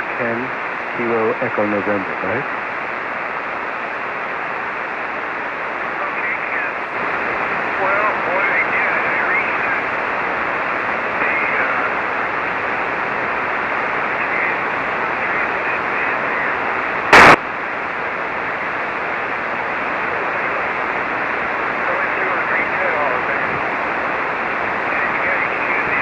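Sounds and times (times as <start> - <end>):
faint radio voice: 0.0 - 2.4, 5.9 - 9.9, 11.1 - 12.3, 14.1 - 17.4, 20.0 - 20.8, 21.8 - 23.7, 24.8 - 26.0
loud radio noise burst: 0.0 - 2.4, 5.7 - 17.5, 18.1 - 26.0
radio receiver hiss: 0.0 - 26.0.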